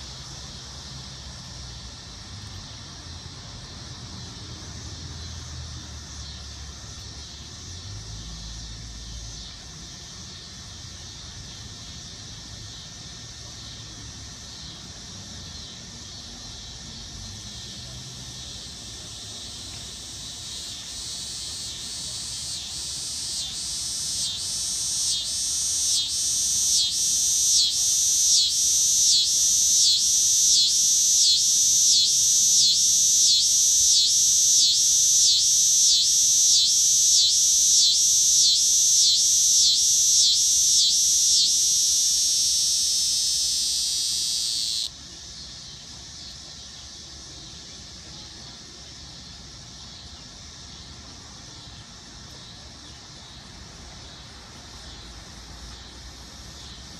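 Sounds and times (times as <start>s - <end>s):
cicada shrill buzz: 15.5s - 46.3s.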